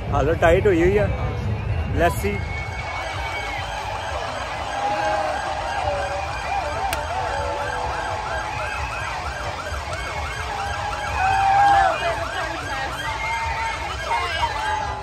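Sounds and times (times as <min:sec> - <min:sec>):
loud steady siren tone: 0:02.0 - 0:15.0
lower wailing siren tone: 0:02.4 - 0:15.0
siren yelping: 0:03.2 - 0:15.0.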